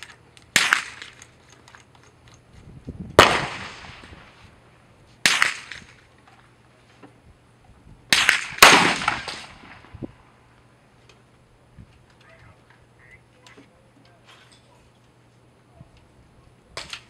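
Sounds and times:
rifle shots echoing: 0:00.0 - 0:01.2, 0:03.2 - 0:04.3, 0:05.2 - 0:05.9, 0:08.1 - 0:09.9.

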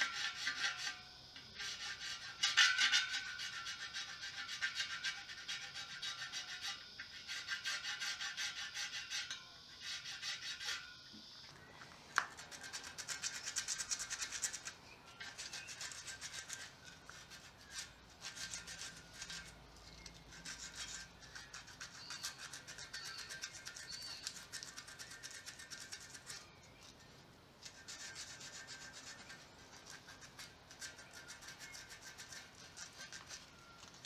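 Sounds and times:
hand file rasping on metal: 0:00.0 - 0:01.0, 0:01.6 - 0:11.0, 0:12.2 - 0:26.5, 0:27.6 - 0:33.7
sandpaper rubbing: 0:12.2 - 0:26.5, 0:27.6 - 0:34.0.

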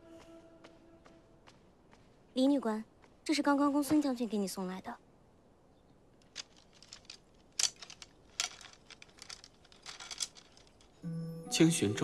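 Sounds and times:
bamboo slips clicking and rustling: 0:06.2 - 0:11.0.

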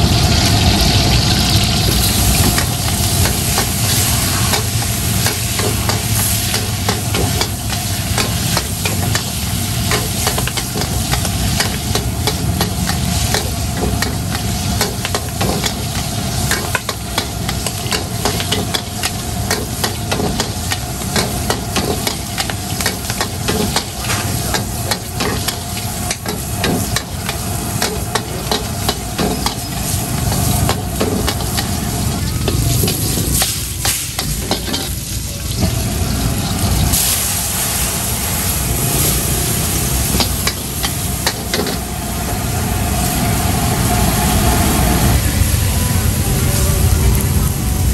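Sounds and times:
food sizzling: 0:00.0 - 0:47.9
gas burner rushing: 0:00.0 - 0:47.9
metal spatula scraping wok: 0:01.5 - 0:35.7.

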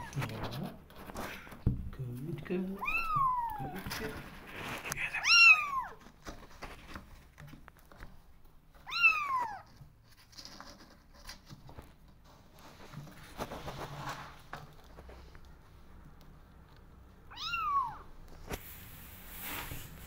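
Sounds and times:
kittens scuffling in cardboard box: 0:00.0 - 0:20.0
kitten meowing: 0:02.8 - 0:04.0, 0:05.1 - 0:06.0, 0:08.8 - 0:09.7, 0:17.3 - 0:18.1.

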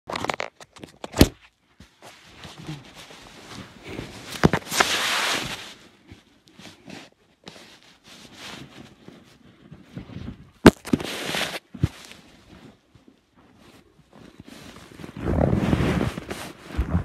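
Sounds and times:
soft scraping: 0:02.0 - 0:17.0
loud cloth rustling: 0:02.1 - 0:06.1, 0:13.5 - 0:17.0.

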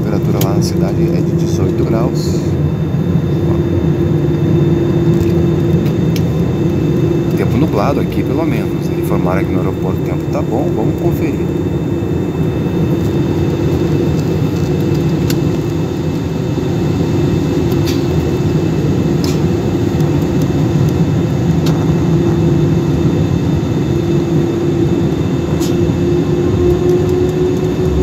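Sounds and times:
airplane engine and airflow rumble: 0:00.0 - 0:28.0
hum rising in pitch: 0:21.2 - 0:28.0.

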